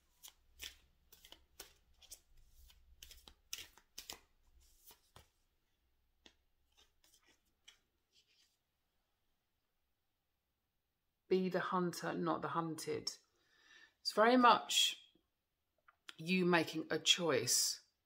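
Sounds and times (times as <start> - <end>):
cards being shuffled: 0.0 - 5.5, 6.2 - 8.6.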